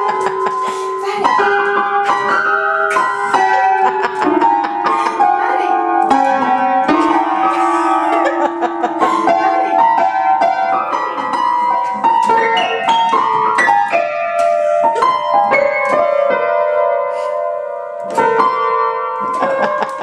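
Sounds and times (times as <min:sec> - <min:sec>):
tuneless piano note clusters: 0:00.0 - 0:20.0.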